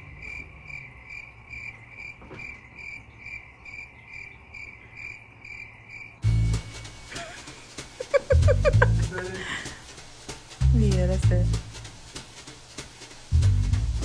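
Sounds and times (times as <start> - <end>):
cricket chirping: 0.0 - 6.3
deep bass sound: 6.2 - 6.8, 8.4 - 9.5, 10.6 - 11.9, 13.3 - 14.0.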